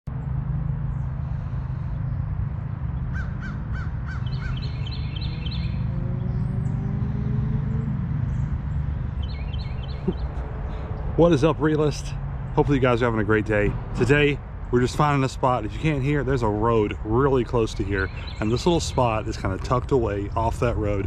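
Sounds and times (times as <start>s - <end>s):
road traffic rumble: 0.0s - 21.0s
bird calling and chirping: 3.1s - 10.9s, 17.9s - 19.8s.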